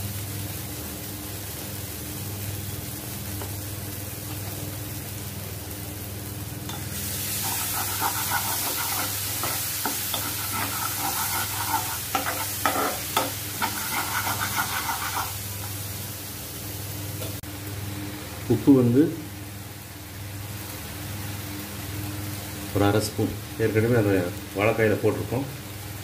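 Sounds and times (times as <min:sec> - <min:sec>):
food sizzling in oil: 0:00.0 - 0:26.0
metal spoon scraping pan: 0:07.4 - 0:15.4.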